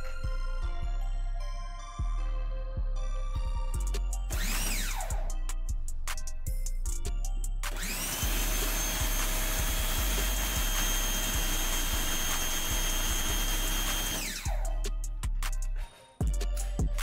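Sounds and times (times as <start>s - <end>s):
pressure washer motor whine: 4.4s - 5.1s, 7.7s - 14.5s.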